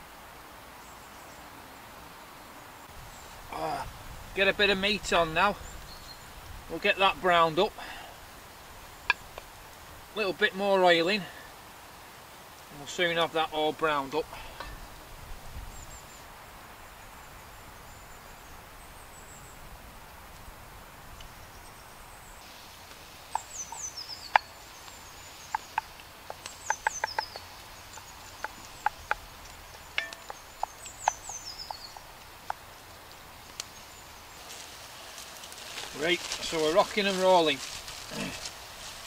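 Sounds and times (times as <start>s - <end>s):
bird calling: 21.2s - 39.0s
pops and clicks while stirring: 22.9s - 33.8s.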